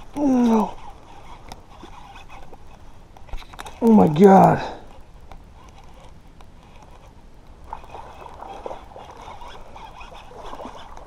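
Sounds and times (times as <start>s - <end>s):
fishing reel winding: 0.0s - 3.9s, 5.6s - 7.1s, 7.8s - 11.0s
water sloshing: 0.0s - 11.0s.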